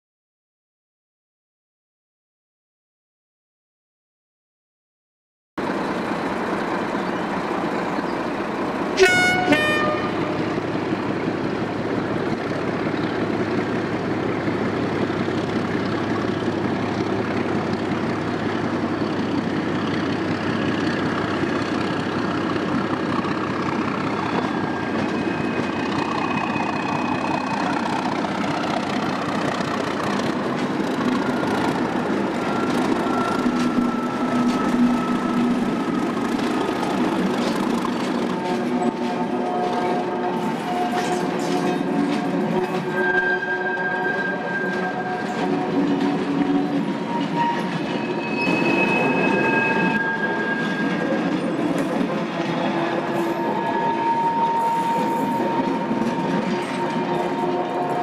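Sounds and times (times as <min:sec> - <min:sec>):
diesel locomotive engine: 0:05.6 - 0:58.0
two-note locomotive horn: 0:09.0 - 0:10.6, 0:38.2 - 0:50.7, 0:52.9 - 0:58.0.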